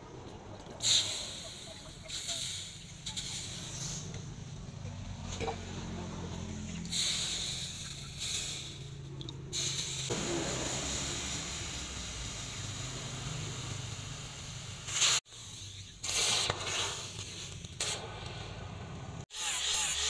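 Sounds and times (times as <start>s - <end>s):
hot metal sizzling in water: 6.9s - 18.0s.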